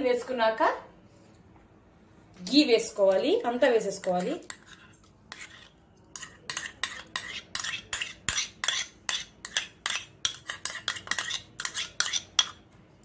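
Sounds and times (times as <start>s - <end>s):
spoon scraping and tapping bowl: 4.0s - 12.7s.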